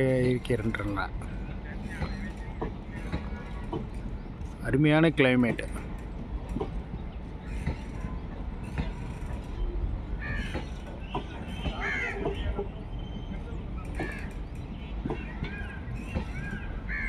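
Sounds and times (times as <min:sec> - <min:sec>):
train rumbling past: 0:00.0 - 0:17.0
crows cawing: 0:10.2 - 0:10.8, 0:11.8 - 0:12.4, 0:16.2 - 0:17.0.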